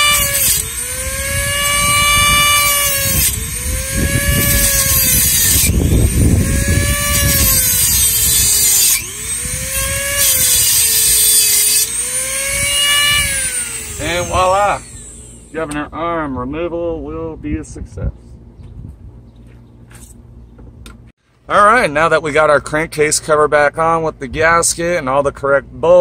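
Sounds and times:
rotary tool motor whine: 0.0s - 15.5s.

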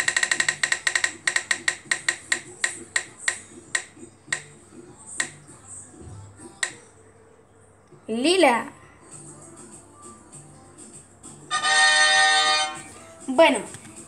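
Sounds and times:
phone app wheel ticking: 0.0s - 4.5s.

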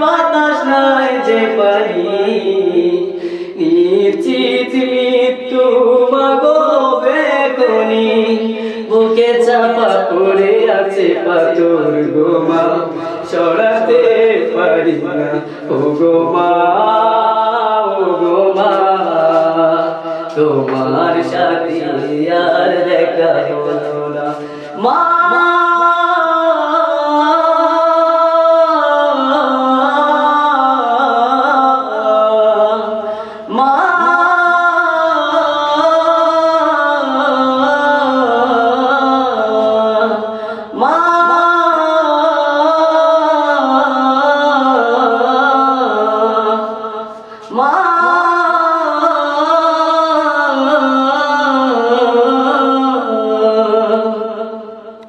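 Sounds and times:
young man singing unaccompanied: 0.0s - 55.0s
singer breathing: 3.1s - 3.6s, 8.5s - 9.0s, 12.8s - 13.3s, 15.4s - 15.8s, 19.9s - 20.4s, 24.3s - 24.9s, 33.0s - 33.6s, 40.2s - 40.8s, 46.8s - 47.6s.

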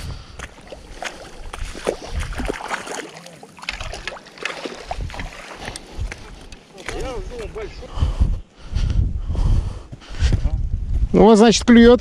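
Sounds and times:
wind buffeting microphone: 0.0s - 3.0s, 3.7s - 12.0s
fish splashing in water: 0.6s - 5.8s.

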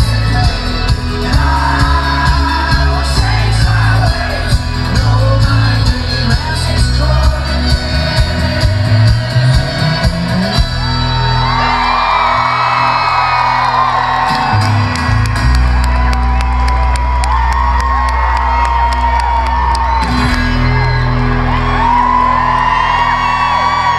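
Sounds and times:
crowd whooping and cheering: 0.0s - 23.9s
folk-rock band playing live: 0.0s - 23.9s.

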